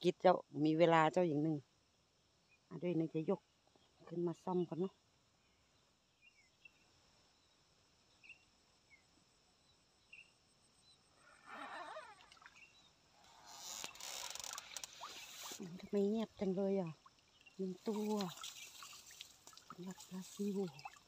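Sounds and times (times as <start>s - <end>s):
faint chirps: 5.4s - 21.0s
water pouring off net: 13.5s - 15.9s, 17.6s - 21.0s.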